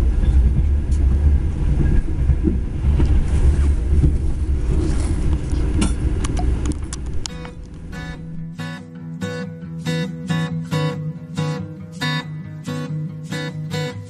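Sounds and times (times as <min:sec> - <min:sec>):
train rumble: 0:00.0 - 0:08.6
acoustic guitar music: 0:00.0 - 0:14.0.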